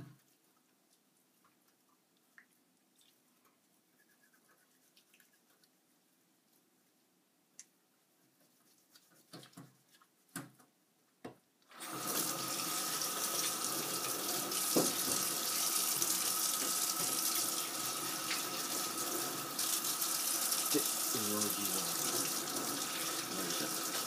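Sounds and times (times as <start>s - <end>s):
water running into steel sink: 11.8s - 24.0s.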